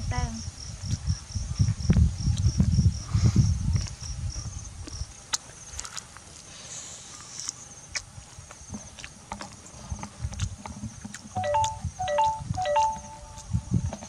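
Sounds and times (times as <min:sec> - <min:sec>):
person chewing crisp food: 0:04.8 - 0:06.5, 0:07.2 - 0:12.4
insects chirping: 0:10.9 - 0:14.0.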